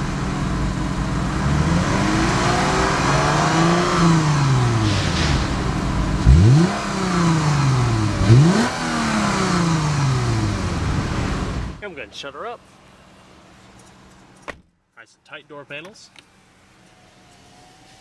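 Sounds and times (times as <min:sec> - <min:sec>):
car engine revving: 0:00.0 - 0:11.8.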